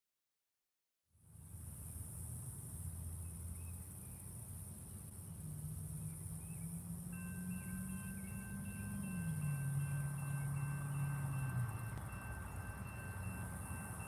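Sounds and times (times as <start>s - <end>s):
low hum: 2.8s - 14.0s
high-pitched insect drone: 5.4s - 14.0s
steady high tones: 7.0s - 14.0s.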